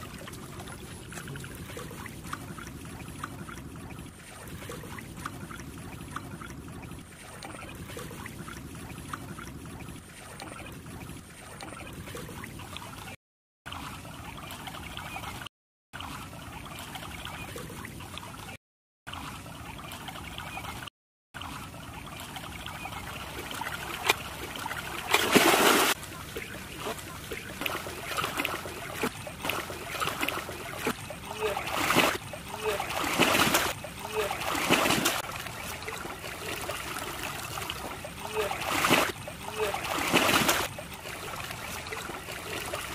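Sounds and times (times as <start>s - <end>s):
muddy water trickling: 0.0s - 42.9s
person splashing in water: 23.5s - 42.9s.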